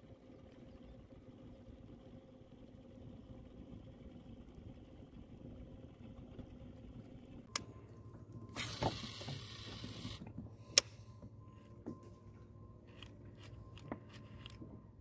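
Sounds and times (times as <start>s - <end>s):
faint steady whine: 0.0s - 15.0s
fishing reel hiss: 8.5s - 10.2s.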